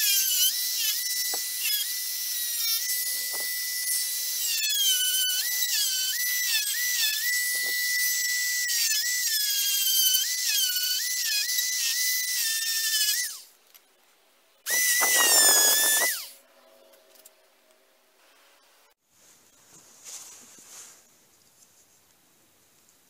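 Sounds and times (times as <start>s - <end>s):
rotary tool sanding wood: 0.0s - 13.4s, 14.7s - 16.3s.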